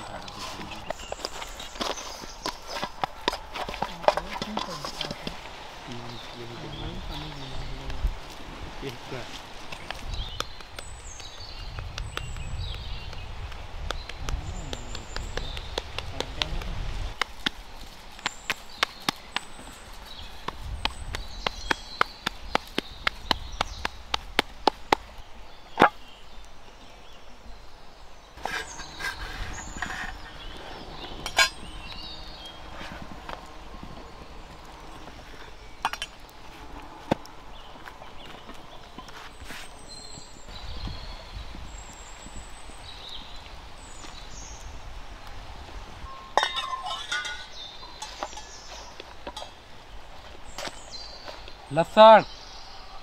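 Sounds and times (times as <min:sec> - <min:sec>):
hands slapping dough: 0:09.8 - 0:11.0, 0:11.7 - 0:17.6
metal spatula clinking on griddle: 0:46.3 - 0:48.5.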